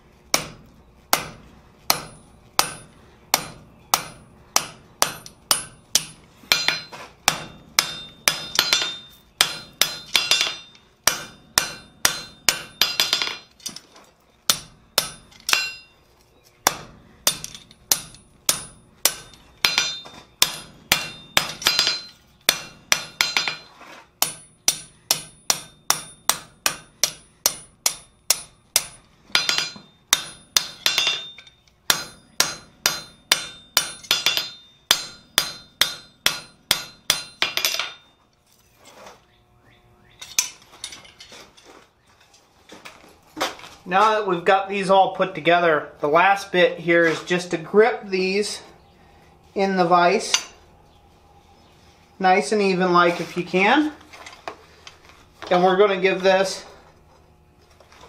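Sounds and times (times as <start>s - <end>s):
hammer striking steel on anvil: 0.3s - 13.8s, 14.5s - 15.9s, 16.6s - 38.0s, 40.2s - 41.1s, 50.2s - 50.6s
anvil ringing: 1.9s - 13.5s, 14.5s - 16.0s, 16.7s - 38.2s, 50.2s - 50.6s.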